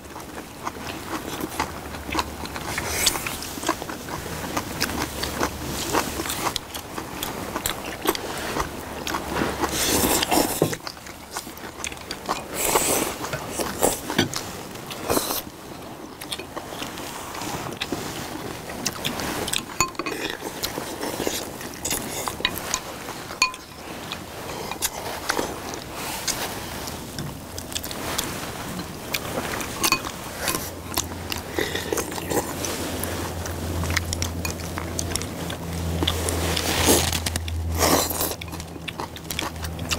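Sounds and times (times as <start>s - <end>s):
people chewing: 0.0s - 39.9s
utensils clicking on ceramic bowls: 19.6s - 20.4s, 21.9s - 25.0s.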